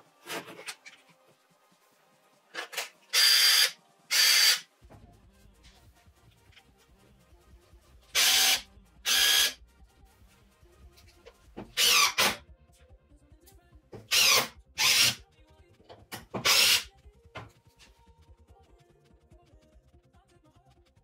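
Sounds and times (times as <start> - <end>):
impact driver motor whirring: 2.8 - 4.6, 8.2 - 9.6, 11.8 - 12.4, 14.1 - 15.2, 16.4 - 16.9.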